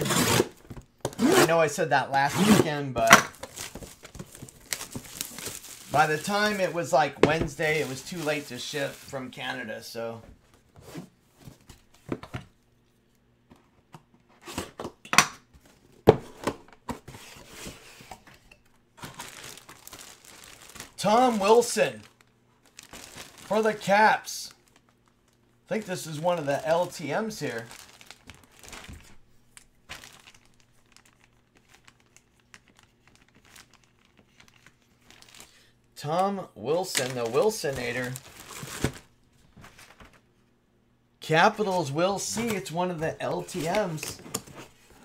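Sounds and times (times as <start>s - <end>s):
low electrical hum: 0.0s - 45.0s
packaging crinkling: 3.3s - 6.9s, 7.6s - 9.4s, 19.0s - 23.9s, 24.5s - 35.7s, 36.8s - 40.2s
cardboard rustling: 3.4s - 9.6s, 19.0s - 24.0s, 25.7s - 29.2s, 36.8s - 40.2s.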